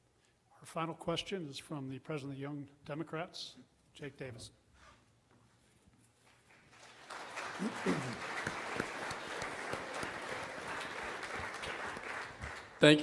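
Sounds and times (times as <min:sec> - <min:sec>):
audience applause: 0:06.5 - 0:13.0.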